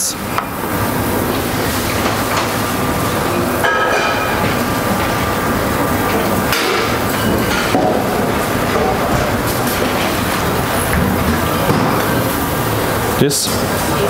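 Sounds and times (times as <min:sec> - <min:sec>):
busy kitchen rushing noise: 0:00.0 - 0:14.0.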